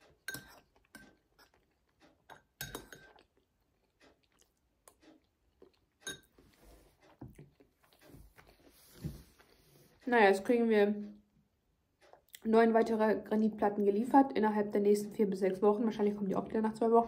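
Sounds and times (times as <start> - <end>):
soft chewing: 0.0 - 10.1, 11.0 - 12.6
metal spoon clinking ceramic bowl: 0.2 - 1.2, 2.3 - 3.2, 6.0 - 6.3.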